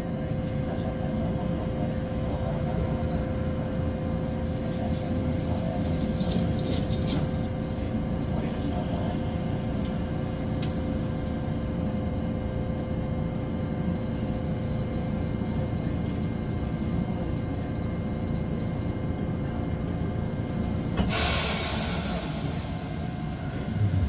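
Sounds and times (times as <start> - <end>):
streetcar wheels rumbling on rail: 0.0 - 24.0
steady humming tone: 21.9 - 24.0.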